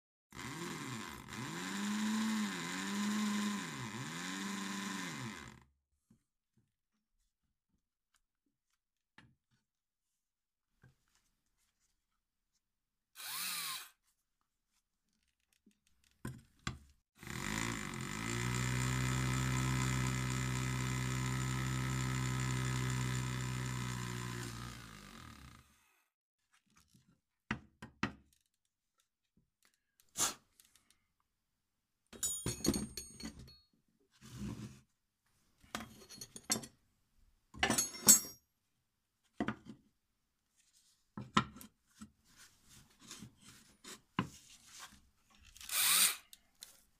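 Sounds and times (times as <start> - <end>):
cordless drill cutting tile: 0.3 - 5.6, 13.2 - 14.0, 17.2 - 26.0, 45.6 - 46.4.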